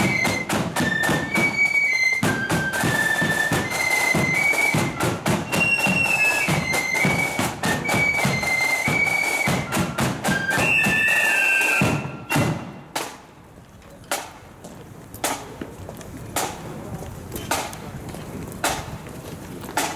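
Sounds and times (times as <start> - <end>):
flute band playing: 0.0 - 13.2
lone drum beat: 0.0 - 13.4, 16.3 - 18.0
snare and bass drums: 0.0 - 13.4, 15.2 - 15.6, 16.3 - 19.1, 19.7 - 19.9.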